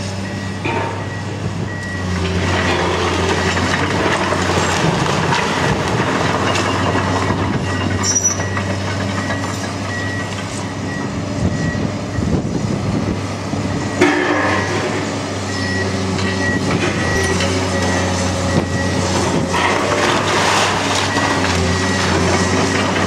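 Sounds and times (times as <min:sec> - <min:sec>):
excavator running: 0:00.0 - 0:23.0
masonry crash: 0:02.4 - 0:08.0, 0:19.2 - 0:23.0
bricks clattering and crunching: 0:02.5 - 0:09.2, 0:19.2 - 0:23.0.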